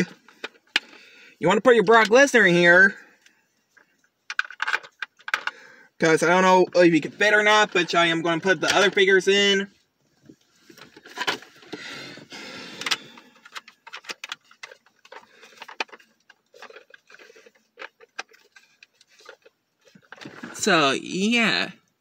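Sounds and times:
rustling: 9.8s - 20.7s.

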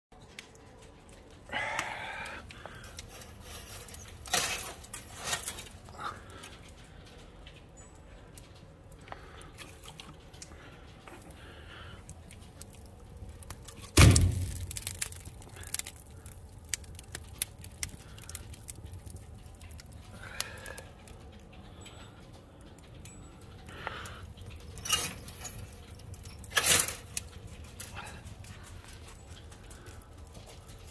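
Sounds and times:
wood fire crackling and popping: 0.1s - 30.9s
chain-mesh screen jangling: 3.1s - 6.1s, 24.4s - 30.9s
log thumping on grate: 13.8s - 15.9s.

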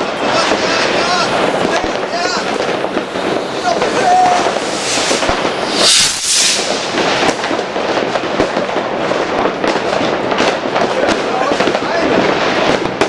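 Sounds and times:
crackling and popping fireworks: 0.0s - 13.0s
firework rocket launching hiss: 0.6s - 8.8s.

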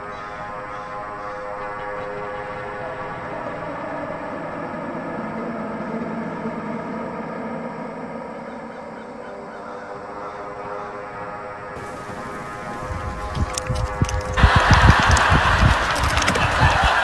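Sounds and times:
car engine low rumble: 11.8s - 16.9s.

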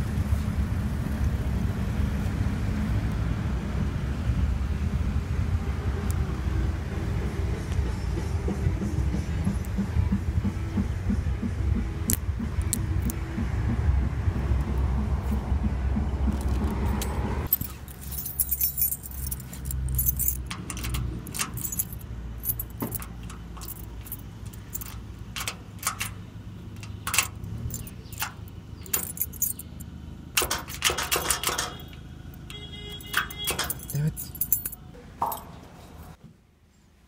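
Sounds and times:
keys jangling: 16.4s - 26.2s, 26.8s - 29.8s, 30.4s - 35.6s
key fitted into lock: 18.4s - 26.2s, 26.8s - 29.6s, 33.0s - 35.4s.

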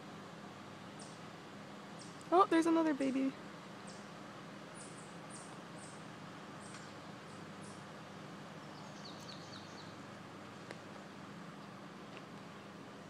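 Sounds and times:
faint background noise: 0.0s - 13.0s
birds chirping: 0.9s - 1.3s, 1.9s - 11.2s.

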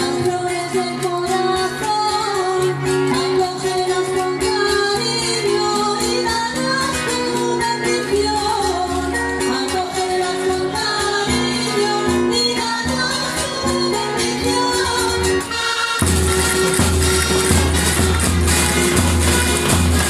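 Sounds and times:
shawms playing a folk melody: 0.0s - 20.0s
drum beat: 16.0s - 20.0s.

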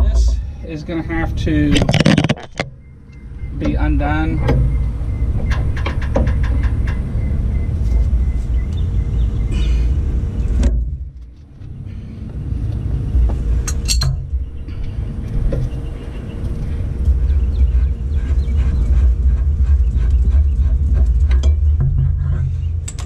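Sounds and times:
loud steady low rumble: 0.0s - 23.0s
metal clinks and knocks: 1.8s - 3.3s, 13.6s - 15.7s.

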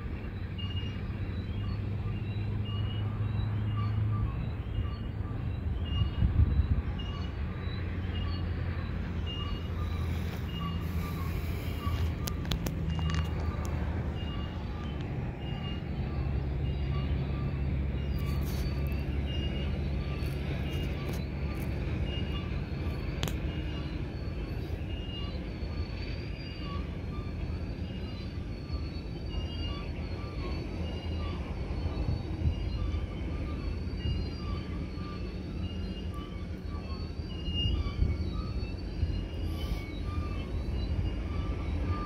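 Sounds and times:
freight train rumbling past: 0.0s - 42.0s
faint high squeak: 2.1s - 42.0s.

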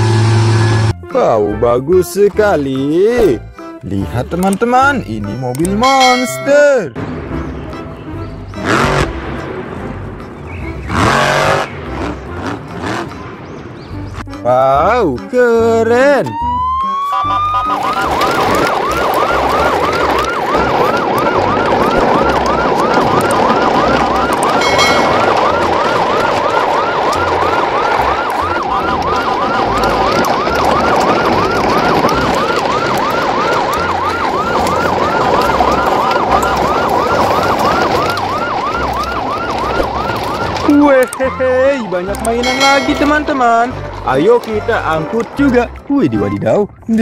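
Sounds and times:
electronic toy siren wailing: 16.3s - 43.3s.

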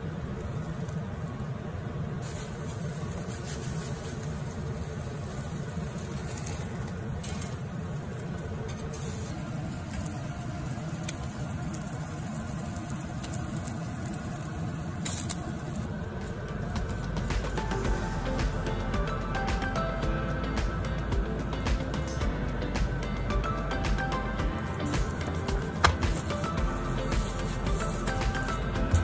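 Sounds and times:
faint crackles of cooking chicken: 0.0s - 17.8s
gas burner flame rushing: 0.0s - 20.0s, 20.7s - 29.0s.

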